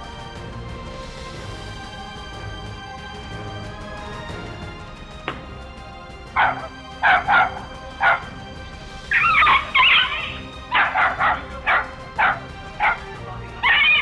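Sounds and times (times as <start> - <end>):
background music: 0.0 - 14.0
small dog yapping: 9.1 - 14.0.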